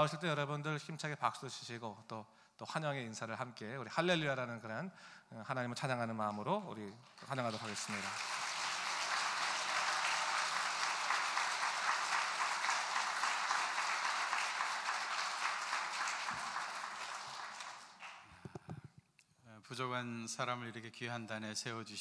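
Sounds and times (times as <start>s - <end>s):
congregation applauding: 7.0s - 18.6s.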